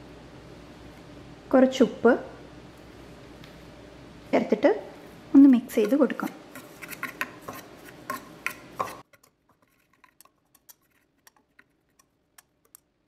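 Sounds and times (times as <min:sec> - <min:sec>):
whisk clicking against bowl: 0:05.8 - 0:12.9.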